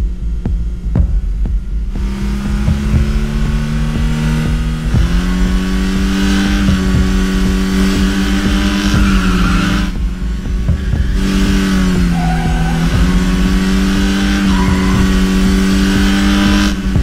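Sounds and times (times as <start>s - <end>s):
car engine revving: 0.0s - 17.0s
road and wind rush: 0.0s - 17.0s.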